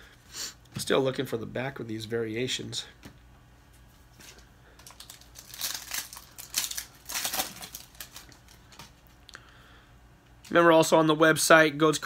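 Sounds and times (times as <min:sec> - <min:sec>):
foil wrapper crinkling: 0:04.2 - 0:09.2.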